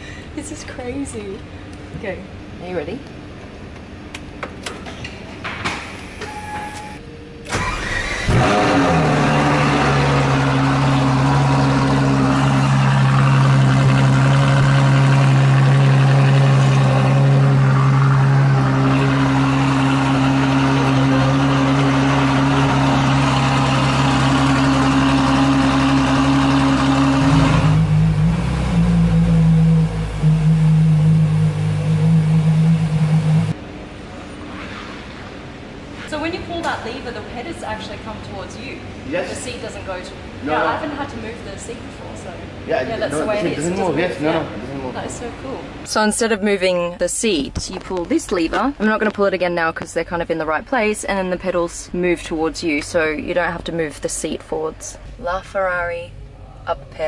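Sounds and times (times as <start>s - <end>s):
sports car engine starting: 7.4s - 33.6s
loud engine idle: 9.0s - 33.6s.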